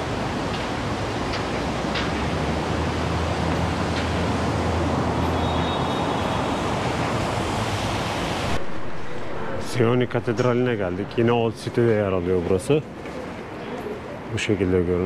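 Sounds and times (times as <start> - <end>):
city traffic: 0.0 - 15.0
wind: 0.0 - 15.0
low hum: 8.2 - 12.9.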